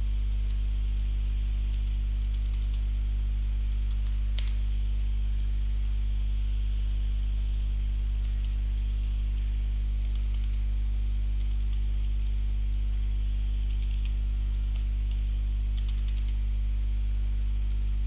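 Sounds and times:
low electrical hum: 0:00.0 - 0:18.0
typing on computer keyboard: 0:01.7 - 0:02.8, 0:11.4 - 0:12.7, 0:13.7 - 0:15.2, 0:15.8 - 0:16.4.

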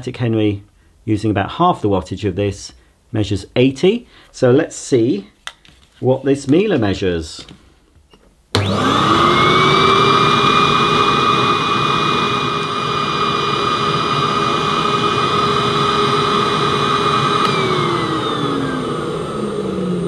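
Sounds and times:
vacuum cleaner motor whine: 0:08.6 - 0:20.0.

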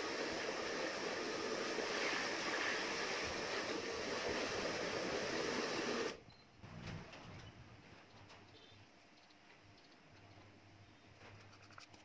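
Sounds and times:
hot-air blower hissing: 0:00.0 - 0:06.2.

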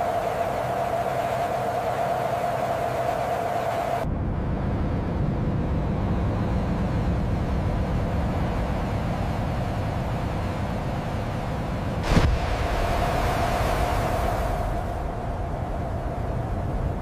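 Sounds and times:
jet engine rumble: 0:00.0 - 0:17.0
airy rushing hiss: 0:12.0 - 0:16.3.

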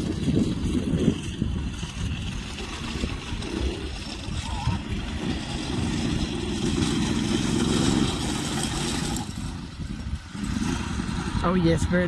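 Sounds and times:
engine running steadily: 0:00.0 - 0:12.0.

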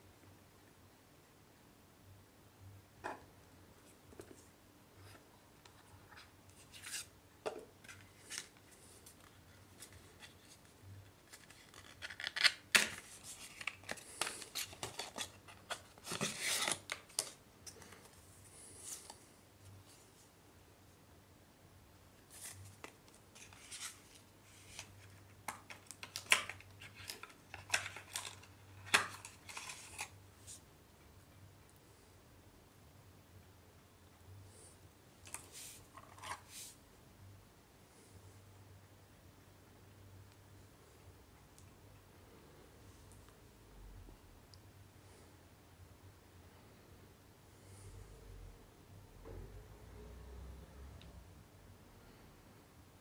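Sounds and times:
cardboard and paper rustling: 0:07.8 - 0:18.2, 0:22.3 - 0:30.1.

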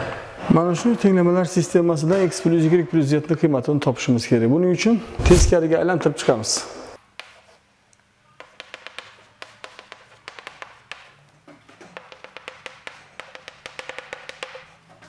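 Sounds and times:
chalk clicking on blackboard: 0:07.2 - 0:07.6, 0:08.4 - 0:14.8.

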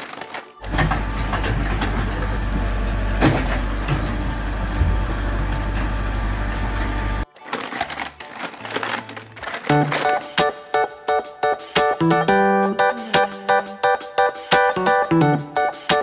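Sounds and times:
diesel engine running: 0:00.6 - 0:07.2.

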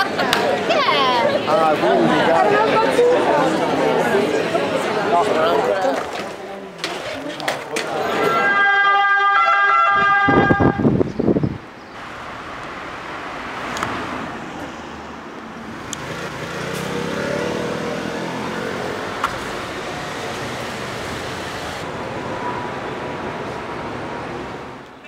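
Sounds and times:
road traffic hum: 0:00.0 - 0:25.0
vehicle passing: 0:12.1 - 0:24.8.

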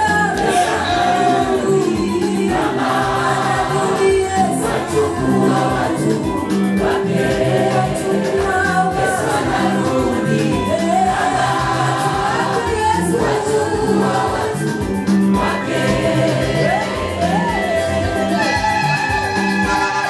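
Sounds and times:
backing music with bass line: 0:00.0 - 0:20.0
gospel choir singing: 0:00.0 - 0:20.0.

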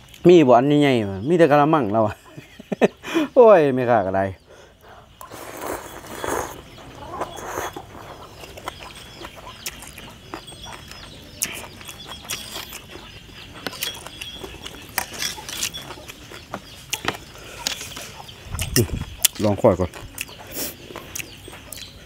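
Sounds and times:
faint animal calls: 0:04.4 - 0:18.4
noodles slurped: 0:05.2 - 0:08.6.

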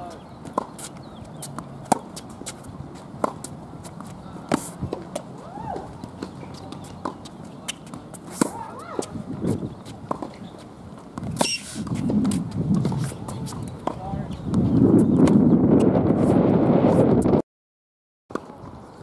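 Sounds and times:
tennis ball struck by rackets: 0:00.5 - 0:09.1.

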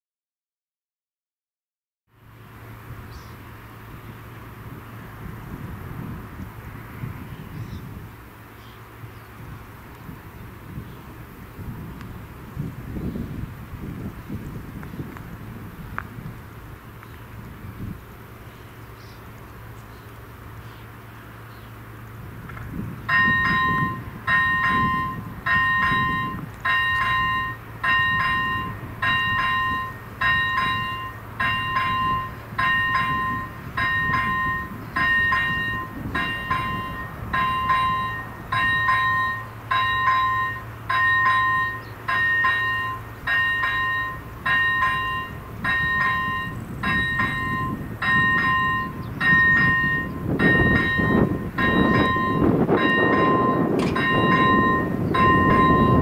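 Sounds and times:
low rumble of approaching train: 0:02.1 - 0:56.0
level-crossing bell ringing: 0:23.1 - 0:56.0.

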